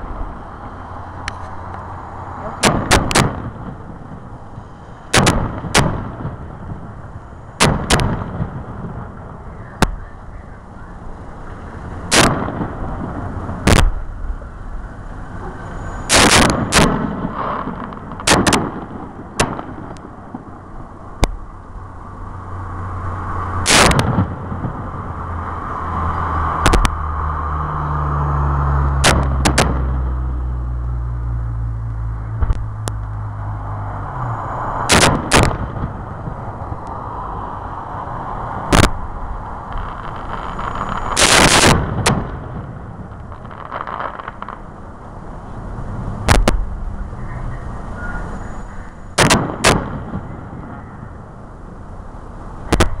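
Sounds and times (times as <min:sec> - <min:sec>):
fireworks bursting: 0:00.0 - 0:10.3, 0:11.2 - 0:21.5, 0:23.6 - 0:25.8, 0:29.0 - 0:30.2, 0:33.6 - 0:36.8, 0:37.9 - 0:47.1, 0:47.8 - 0:50.8
low steady rumble: 0:00.0 - 0:53.0.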